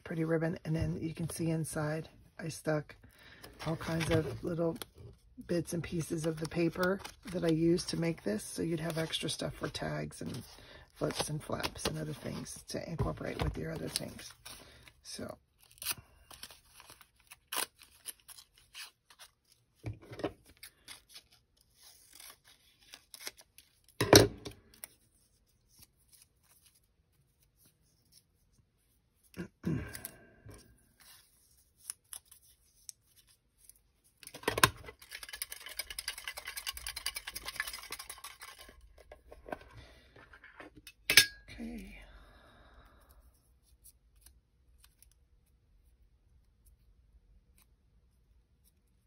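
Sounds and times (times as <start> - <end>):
paper rustling: 3.4 - 5.2, 5.8 - 14.9
metal tin rattling when shaken: 35.0 - 38.8.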